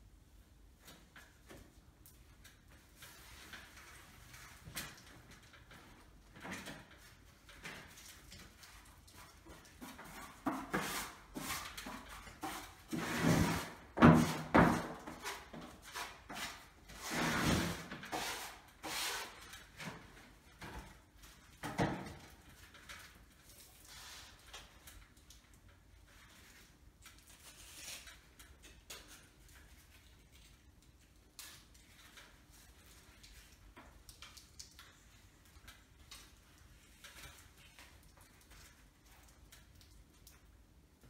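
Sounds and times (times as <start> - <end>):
rustling sheet rubbed on wall: 8.6 - 19.5, 23.7 - 24.6.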